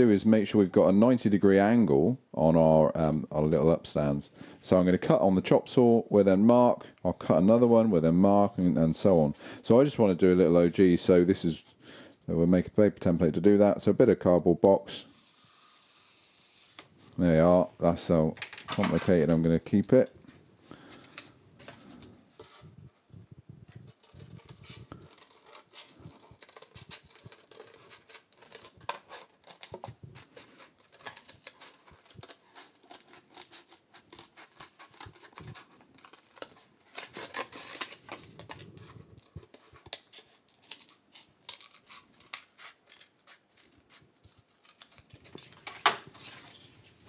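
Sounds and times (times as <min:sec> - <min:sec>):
scissors cutting cardboard: 0:23.9 - 0:46.7.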